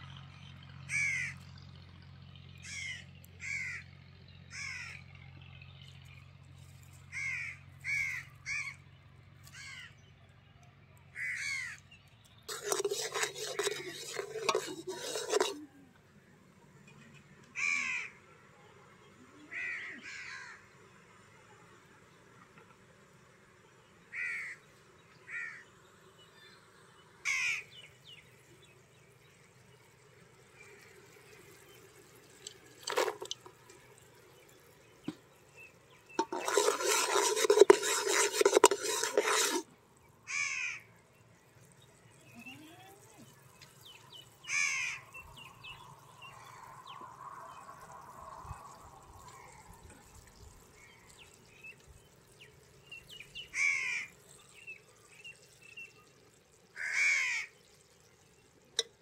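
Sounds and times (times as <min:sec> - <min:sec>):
crows cawing: 0:00.9 - 0:01.4, 0:02.6 - 0:03.9, 0:04.5 - 0:05.0, 0:07.1 - 0:08.8, 0:09.5 - 0:10.0, 0:11.2 - 0:11.8, 0:17.6 - 0:18.2, 0:19.5 - 0:20.6, 0:24.1 - 0:24.6, 0:25.3 - 0:25.6, 0:27.2 - 0:27.7, 0:40.3 - 0:40.9, 0:44.4 - 0:45.1, 0:53.5 - 0:54.2, 0:56.8 - 0:57.5
ladle scraping metal pot: 0:12.5 - 0:15.7, 0:32.2 - 0:33.8, 0:36.1 - 0:39.7
syrup bubbling: 0:12.5 - 0:15.7, 0:29.1 - 0:39.7, 0:45.8 - 0:56.9.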